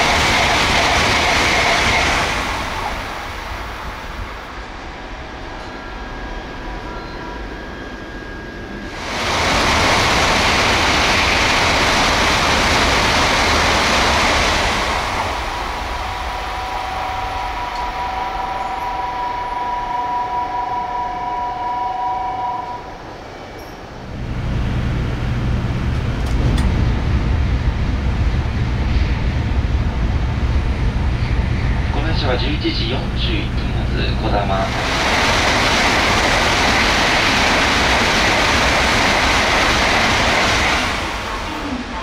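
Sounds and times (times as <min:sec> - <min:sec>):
high-speed train passing: 0:00.0 - 0:42.0
low rumble: 0:24.0 - 0:38.1.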